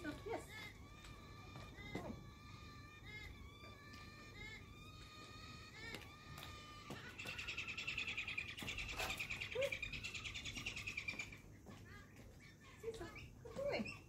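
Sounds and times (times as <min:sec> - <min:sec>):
cockatoos calling: 0:00.0 - 0:14.0
harsh rasping bird screech: 0:07.2 - 0:09.6.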